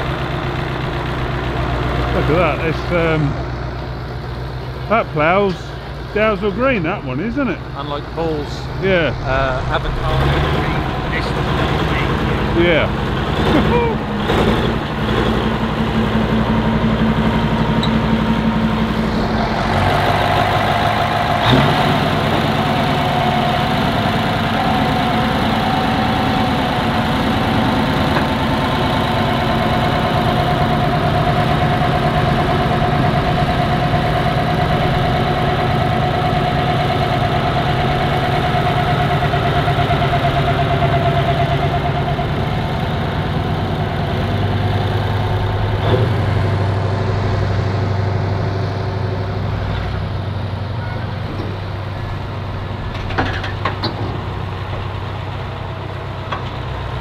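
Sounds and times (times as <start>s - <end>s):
diesel tractor engines running: 0.0s - 57.0s
steady high whine: 4.9s - 14.2s.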